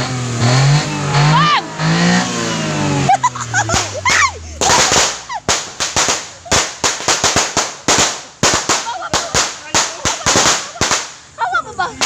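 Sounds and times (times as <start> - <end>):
engine revving: 0.0 - 7.6
firecrackers banging: 0.0 - 12.0.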